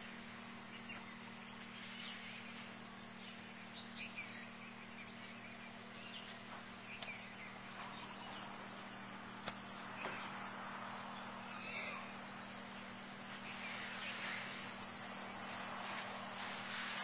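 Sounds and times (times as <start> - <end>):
steady low hum: 0.0 - 17.0
bird chirps: 0.6 - 10.4.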